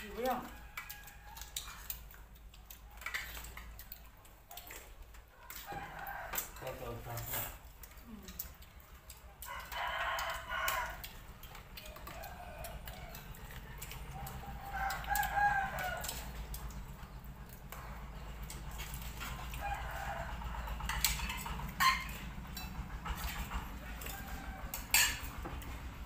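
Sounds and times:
rooster crowing: 0.3s - 1.6s, 5.4s - 7.0s, 9.4s - 11.2s, 11.8s - 16.4s, 19.4s - 22.1s, 23.8s - 25.8s.

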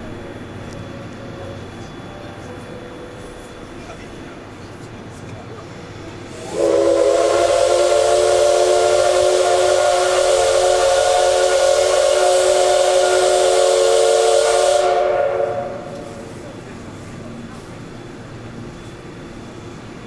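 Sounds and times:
steam hissing: 5.6s - 19.9s
steam locomotive whistle blast: 6.3s - 16.4s.

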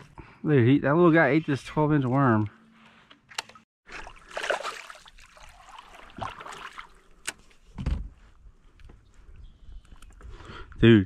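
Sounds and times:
water splashing: 3.8s - 7.2s
fish thrashing at the surface: 3.9s - 7.0s.

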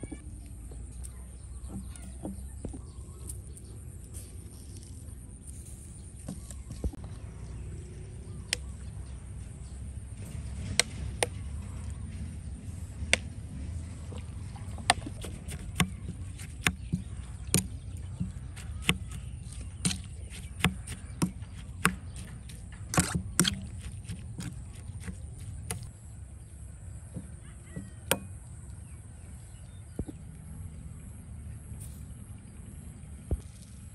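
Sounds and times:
low steady rumble: 0.0s - 33.9s
knife chopping on cutting board: 14.9s - 19.2s.

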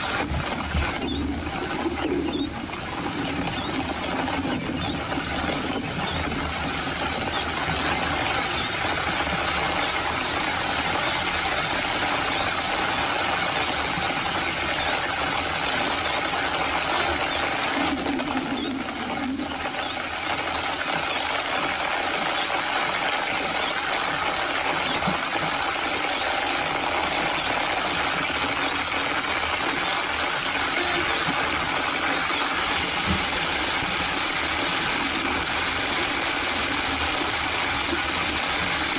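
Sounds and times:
rain hitting windshield: 0.0s - 38.9s.

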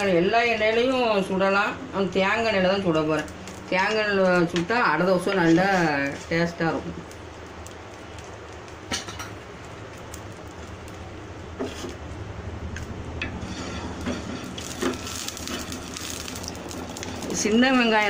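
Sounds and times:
oil sizzling on a griddle: 4.7s - 12.2s, 13.2s - 18.0s.

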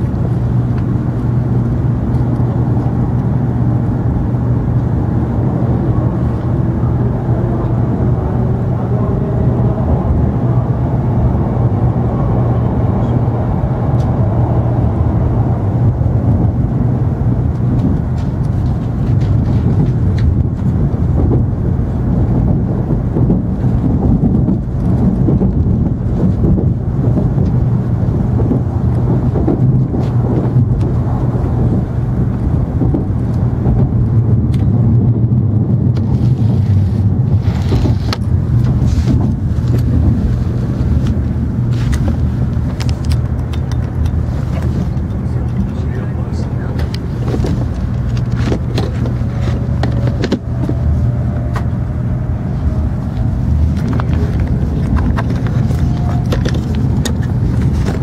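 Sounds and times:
train cabin rumble and hum: 0.0s - 58.0s
wheels clicking over rail joints: 35.9s - 58.0s.

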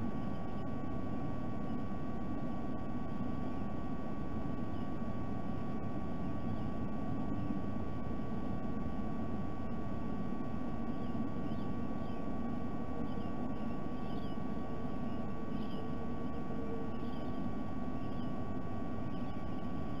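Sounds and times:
thin electrical tone: 0.0s - 20.0s
faint high bird chirps: 6.3s - 7.5s, 10.8s - 12.3s, 13.0s - 18.4s, 19.0s - 20.0s.

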